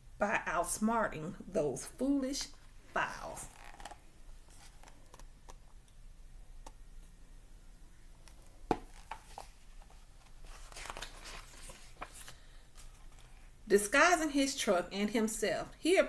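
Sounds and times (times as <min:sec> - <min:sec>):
paper clicks and rustles: 0:03.6 - 0:05.6, 0:08.2 - 0:13.4.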